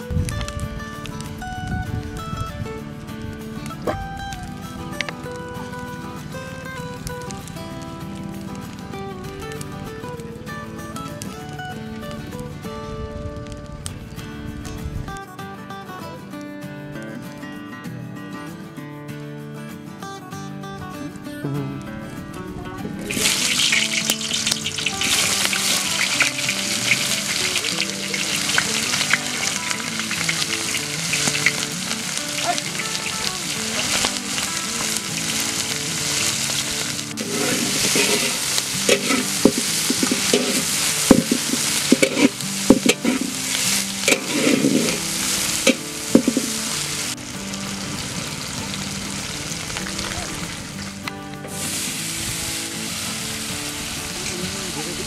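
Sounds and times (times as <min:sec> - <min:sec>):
onions sizzling in hot oil: 0:23.0 - 0:55.0
spatula scraping a wok: 0:37.2 - 0:46.7.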